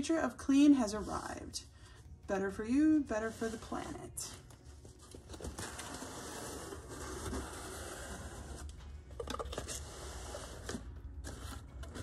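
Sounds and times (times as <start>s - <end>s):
cardboard scraping and rustling: 4.7s - 12.0s.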